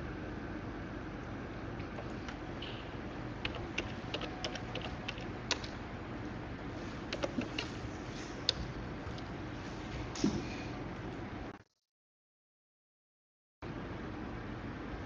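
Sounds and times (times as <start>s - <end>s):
steady background hum: 0.0s - 11.6s, 13.6s - 15.0s
keyboard keystrokes: 3.4s - 5.8s, 7.1s - 7.8s.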